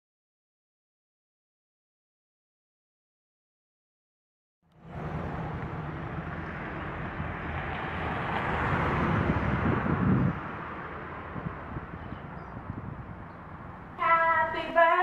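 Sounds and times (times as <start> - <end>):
street ambience rush: 4.7 - 15.0
wind rumbling on microphone: 4.8 - 15.0.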